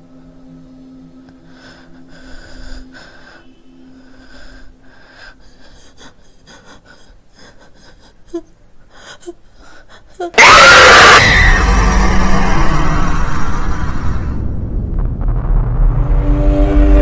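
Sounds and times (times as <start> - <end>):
woman breathing heavily: 1.4 - 10.3.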